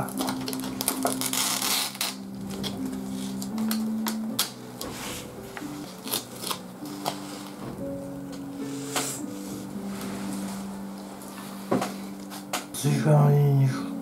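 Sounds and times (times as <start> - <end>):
paper lid tearing rustle: 0.1 - 3.4.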